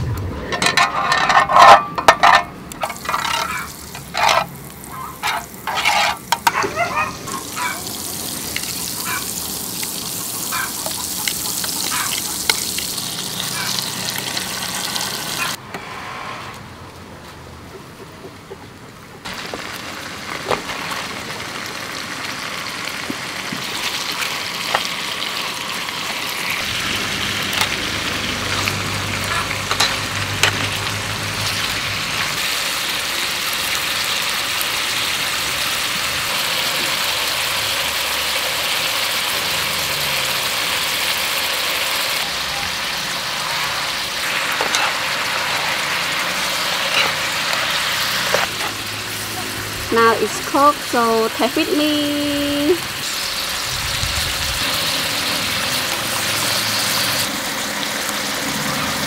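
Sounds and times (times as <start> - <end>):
meat and vegetables sizzling: 1.0 - 15.6, 19.3 - 59.0
sharp pops of frying: 10.8 - 12.9.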